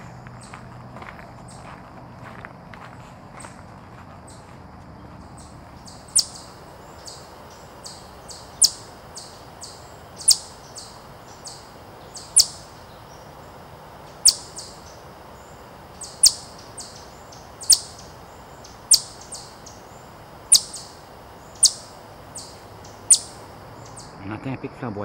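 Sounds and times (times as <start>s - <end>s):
chipmunk alarm chip call: 5.4s - 24.2s.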